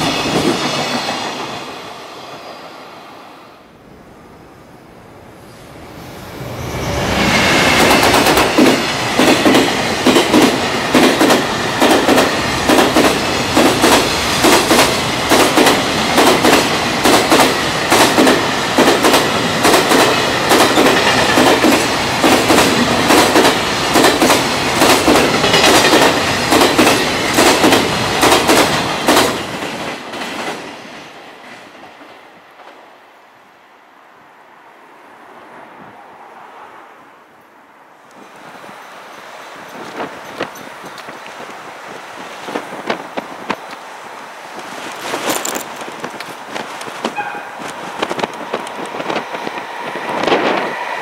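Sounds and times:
train wheels clacking over rail joints: 0:07.6 - 0:30.8.

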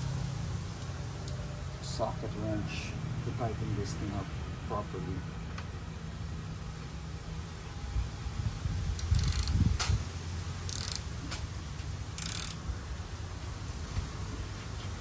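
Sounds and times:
ratchet wrench clicking: 0:09.0 - 0:09.9, 0:10.6 - 0:11.1, 0:12.2 - 0:12.6.

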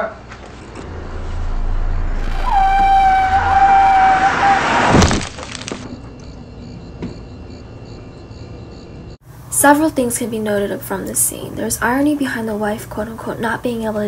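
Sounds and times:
loud crash: 0:00.8 - 0:06.0
long high held note: 0:01.2 - 0:04.7.

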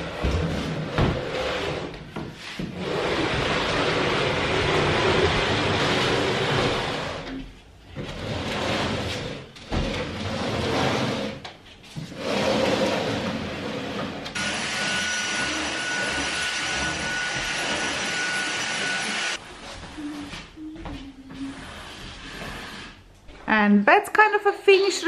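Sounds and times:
furniture scraping across floor: 0:00.0 - 0:23.4
vacuum cleaner whining: 0:14.4 - 0:22.6.

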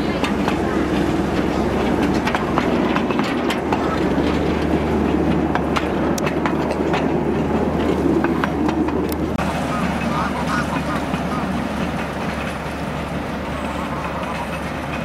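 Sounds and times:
miniature train rumbling: 0:00.0 - 0:15.0
wheels clicking over rails: 0:00.0 - 0:15.0.

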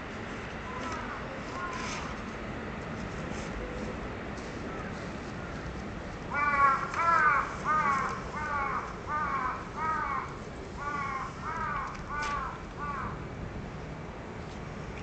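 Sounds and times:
crow cawing: 0:06.3 - 0:13.2.

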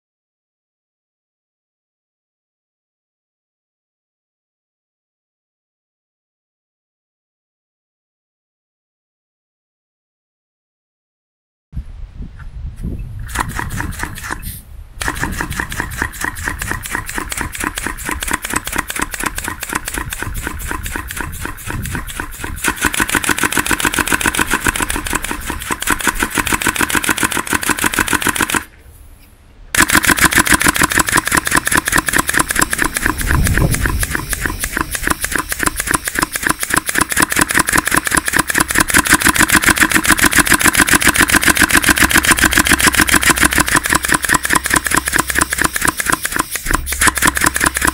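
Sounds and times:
compressed-air engine popping: 0:13.2 - 0:28.8, 0:29.7 - 0:47.9.

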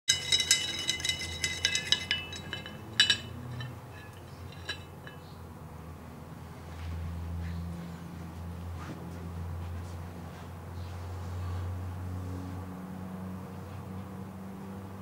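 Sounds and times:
glassware clinking: 0:00.1 - 0:05.3
low steady hum: 0:00.1 - 0:05.4.

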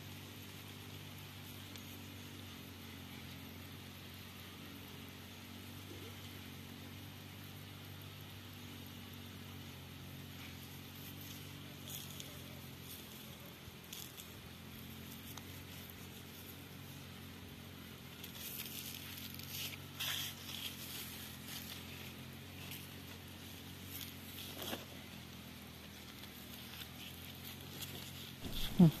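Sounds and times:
leaves rustling: 0:08.5 - 0:29.0
steady low hum: 0:20.3 - 0:29.0.

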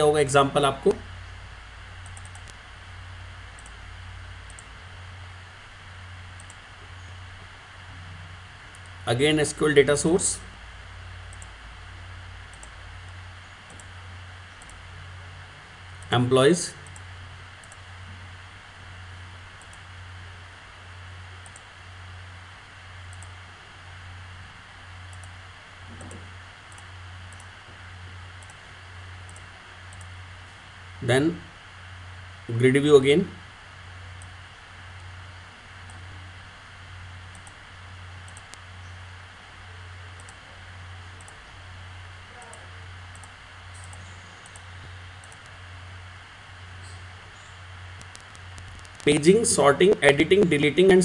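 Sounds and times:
microphone hiss and hum: 0:00.0 - 0:51.0
computer mouse clicks: 0:02.0 - 0:02.6, 0:03.5 - 0:03.8, 0:04.4 - 0:04.7, 0:06.4 - 0:06.6, 0:11.3 - 0:11.6, 0:12.5 - 0:12.8, 0:13.6 - 0:13.9, 0:14.6 - 0:14.8, 0:16.8 - 0:17.8, 0:19.6 - 0:19.9, 0:21.4 - 0:21.7, 0:23.1 - 0:23.4, 0:25.1 - 0:27.5, 0:28.4 - 0:28.6, 0:29.2 - 0:30.1, 0:37.3 - 0:37.6, 0:38.2 - 0:38.6, 0:40.2 - 0:40.4, 0:41.2 - 0:41.4, 0:42.5 - 0:45.6, 0:46.8 - 0:49.2.

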